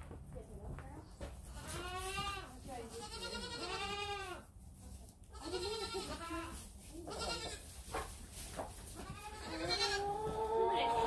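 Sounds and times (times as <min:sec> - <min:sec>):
goats bleating: 0:01.6 - 0:04.4, 0:05.3 - 0:06.5, 0:07.1 - 0:07.6, 0:09.0 - 0:11.0.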